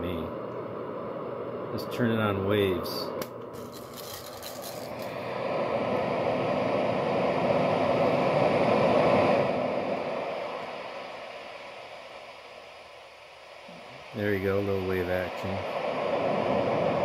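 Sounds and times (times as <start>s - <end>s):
synthetic ocean wave hiss: 4.6s - 17.0s.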